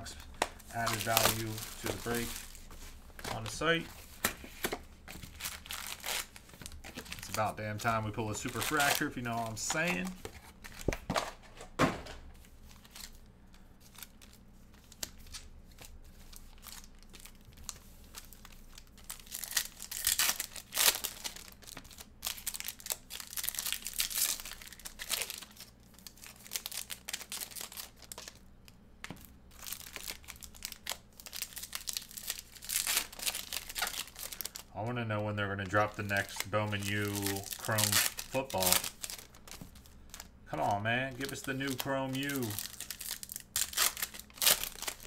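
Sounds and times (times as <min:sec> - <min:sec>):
foil wrappers tearing and crinkling: 0:00.0 - 0:11.0, 0:13.8 - 0:28.4, 0:29.5 - 0:34.7, 0:35.6 - 0:45.0.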